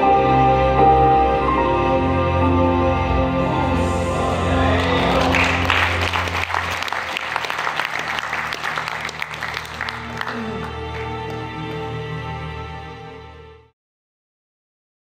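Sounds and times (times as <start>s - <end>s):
performance music: 0.0s - 13.7s
audience clapping: 4.5s - 12.1s.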